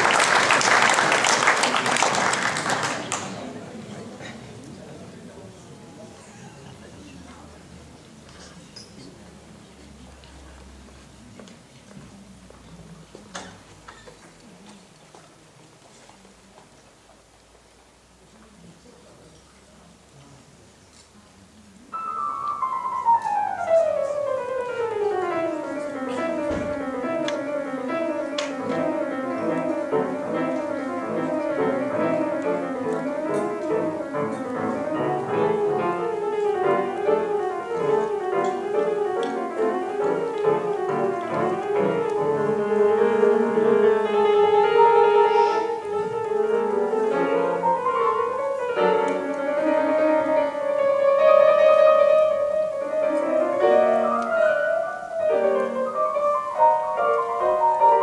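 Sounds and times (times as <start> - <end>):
grand piano playing: 0.0 - 3.4, 21.9 - 58.0.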